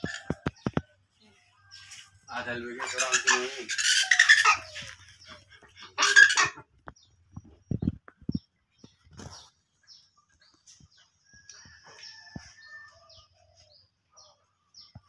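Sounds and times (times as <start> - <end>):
fowl calling: 1.8 - 6.7
fowl squawking: 2.4 - 6.7.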